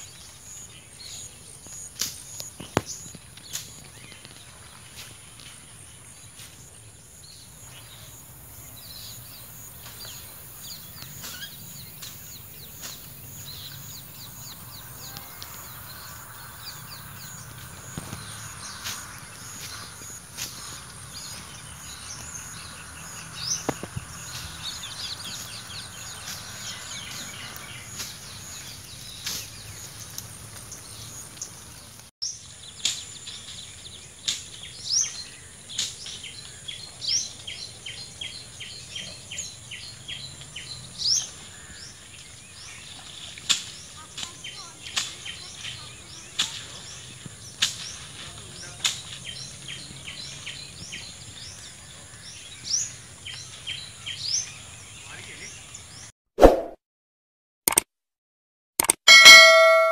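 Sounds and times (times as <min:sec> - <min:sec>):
bird calls and chirps: 0:06.0 - 0:56.1
high insect drone: 0:11.4 - 0:27.1.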